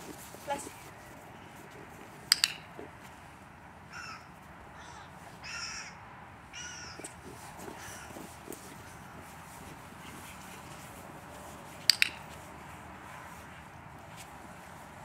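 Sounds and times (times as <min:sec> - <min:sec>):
crow cawing: 0:03.9 - 0:07.1, 0:07.8 - 0:08.2.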